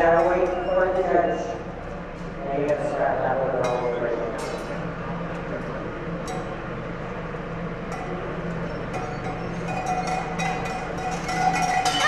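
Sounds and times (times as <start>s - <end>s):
low steady hum: 0.0s - 12.0s
metal chain clinking and rattling: 9.0s - 12.0s.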